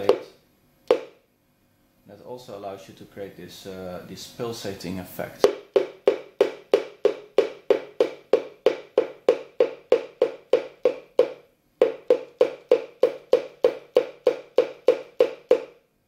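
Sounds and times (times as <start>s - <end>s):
hand tapping on tabletop: 0.0s - 0.3s, 0.9s - 1.2s, 5.4s - 15.8s.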